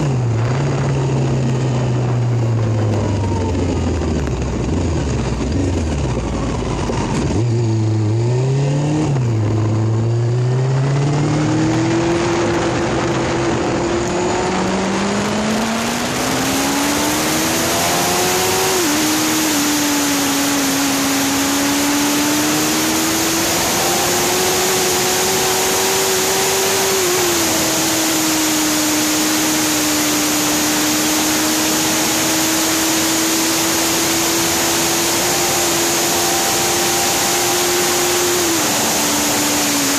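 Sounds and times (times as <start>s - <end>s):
wind rush on microphone: 0.0s - 8.2s, 9.0s - 21.4s
motorcycle engine accelerating: 0.0s - 39.9s.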